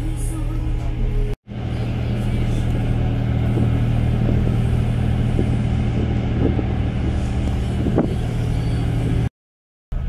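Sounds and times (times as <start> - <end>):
ship engines droning: 0.0 - 9.3.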